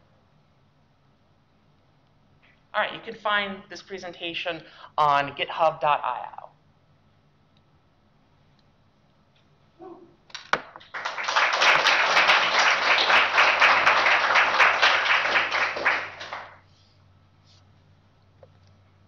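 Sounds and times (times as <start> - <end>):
audience applauding: 10.8 - 16.6.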